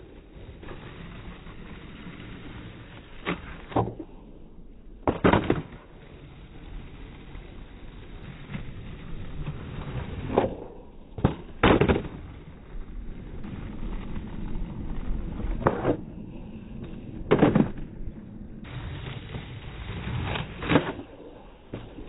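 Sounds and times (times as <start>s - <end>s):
skateboard wheels rolling on asphalt: 0.0s - 22.0s
skateboard clacks: 0.1s - 22.0s.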